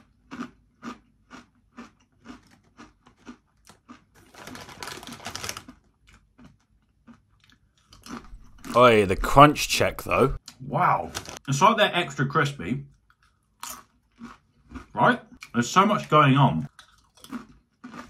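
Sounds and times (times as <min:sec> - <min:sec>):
crunchy chewing of chips: 0:00.0 - 0:11.4, 0:12.9 - 0:18.0
crisp packet rustling: 0:02.4 - 0:06.2, 0:11.0 - 0:11.4.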